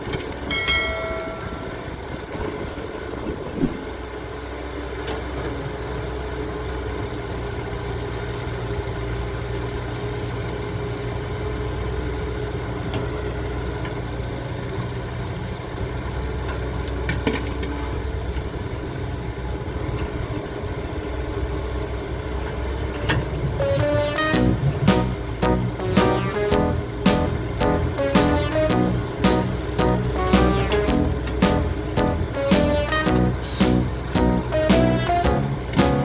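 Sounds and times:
dump truck engine running: 0:01.2 - 0:36.0
excavator diesel engine: 0:21.0 - 0:36.0.

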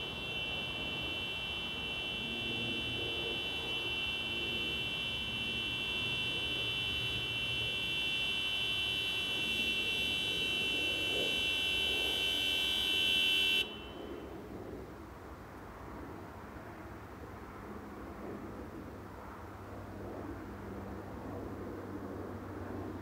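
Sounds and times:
high-pitched electronic buzzing: 0:00.0 - 0:13.8.

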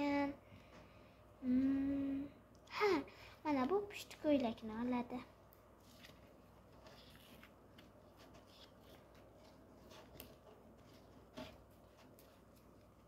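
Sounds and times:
paper rustling and clicking: 0:05.8 - 0:13.0.

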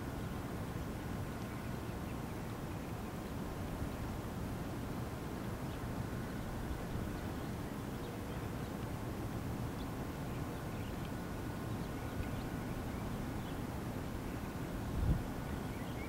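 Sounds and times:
faint bird chirps: 0:15.4 - 0:16.0.

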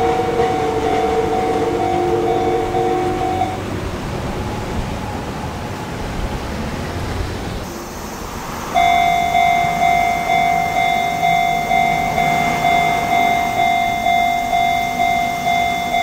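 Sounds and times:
level crossing bell dinging: 0:00.0 - 0:03.6, 0:08.8 - 0:16.0.

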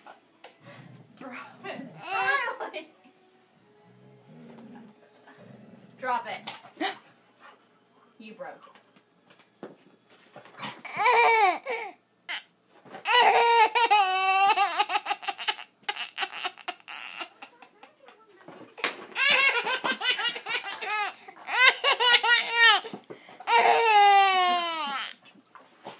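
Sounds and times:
baby laughing: 0:10.8 - 0:12.4, 0:13.0 - 0:25.2.

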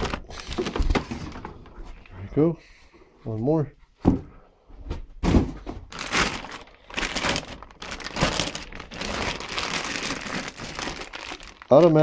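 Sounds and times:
plastic wrapping crinkling: 0:00.0 - 0:01.0, 0:05.9 - 0:12.0
box thump: 0:05.2 - 0:05.9.

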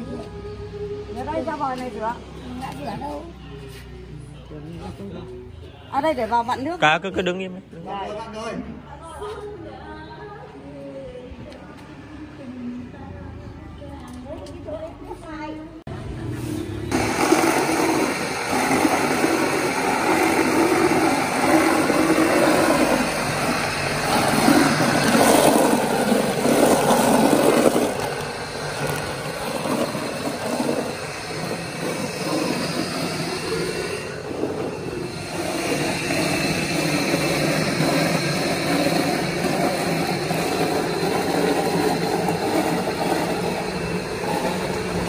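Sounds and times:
electric meat grinder running: 0:16.9 - 0:45.0.

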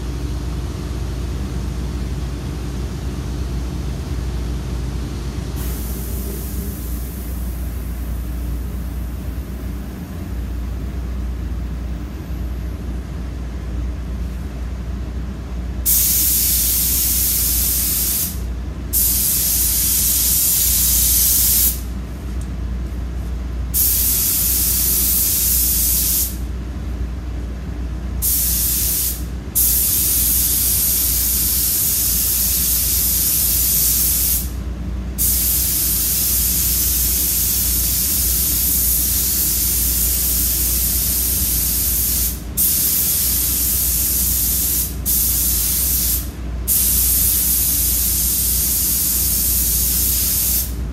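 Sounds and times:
steady low hum: 0:00.0 - 0:50.9
paint spray gun hissing: 0:05.6 - 0:07.5, 0:15.9 - 0:21.8, 0:23.8 - 0:26.4, 0:28.2 - 0:34.6, 0:35.2 - 0:50.8.

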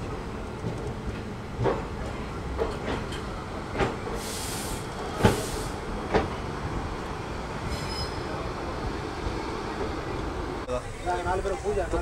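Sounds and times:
train rumble: 0:00.0 - 0:12.0
brief hisses: 0:04.2 - 0:05.8.

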